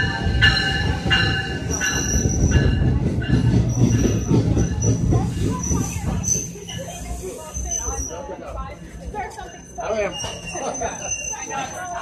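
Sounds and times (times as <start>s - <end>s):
train wheels rumbling on rail: 0.0s - 12.0s
high wheel squeal: 3.7s - 8.3s, 9.4s - 12.0s.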